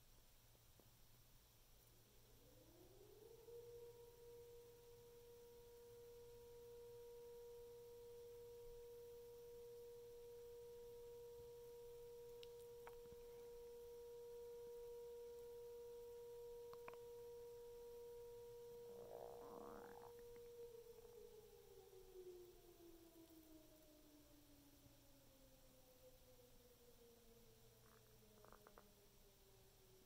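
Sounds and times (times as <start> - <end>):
stomach whining tone: 12.2 - 22.1, 27.8 - 29.2
faint clicks: 12.3 - 13.2, 16.7 - 17.1.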